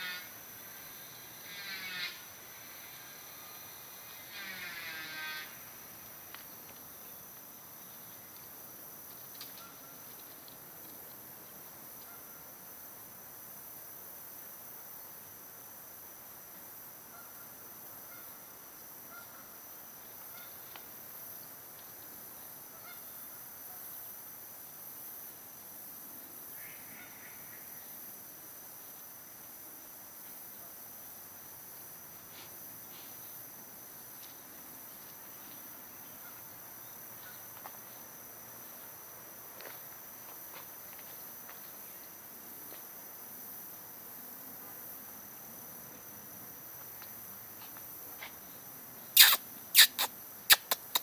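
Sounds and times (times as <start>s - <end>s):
steady high hiss: 0.0s - 51.0s
brief pitched call: 49.2s - 51.0s.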